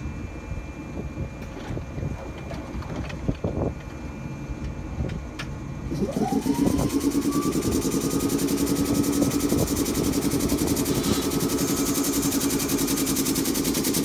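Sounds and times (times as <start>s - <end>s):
train whine rising: 5.6s - 14.0s.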